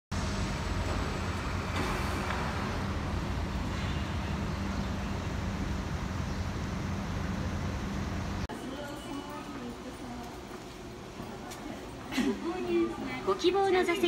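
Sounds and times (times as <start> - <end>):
road traffic: 0.1 - 8.9
constant low hum: 0.1 - 14.0.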